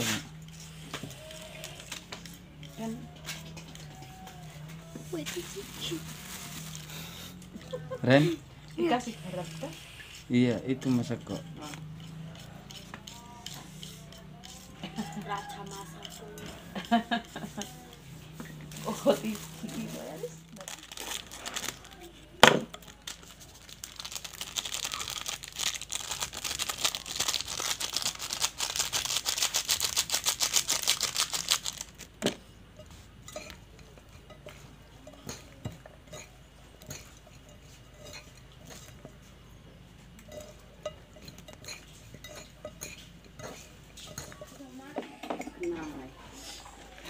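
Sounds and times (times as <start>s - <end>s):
plastic sachet crinkling: 5.3s - 7.2s, 19.1s - 32.1s.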